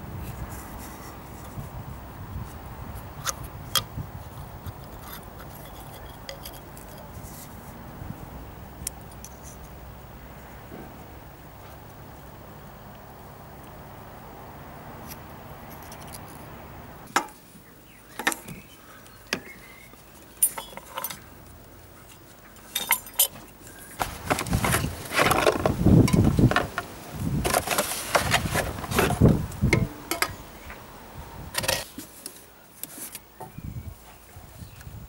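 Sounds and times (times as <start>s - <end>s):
metallic clinks and knocks: 20.4s - 21.2s, 22.7s - 23.4s
clattering and rustling: 22.0s - 30.4s.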